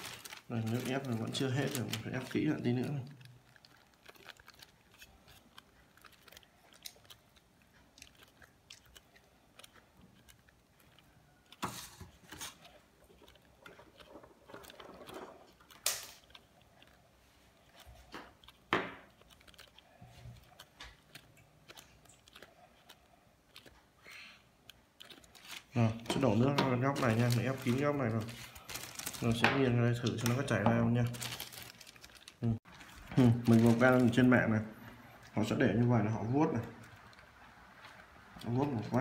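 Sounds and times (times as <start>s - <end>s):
plastic bag crinkling: 0.0s - 35.6s, 36.5s - 39.0s.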